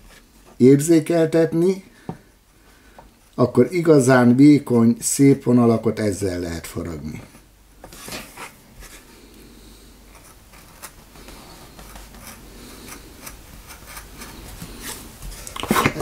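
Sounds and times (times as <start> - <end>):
knife scratching wood: 10.1 - 16.0.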